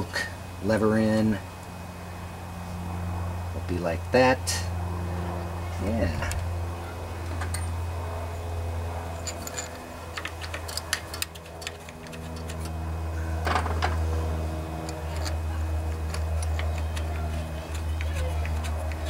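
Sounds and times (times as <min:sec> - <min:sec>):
steady low hum: 0:00.0 - 0:19.0
small metallic clicks and taps: 0:09.2 - 0:12.8, 0:16.0 - 0:19.0.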